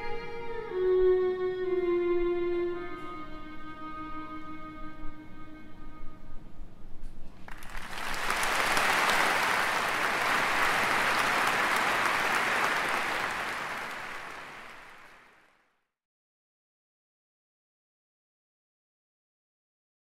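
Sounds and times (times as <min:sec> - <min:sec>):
audience applauding: 0:07.5 - 0:15.5.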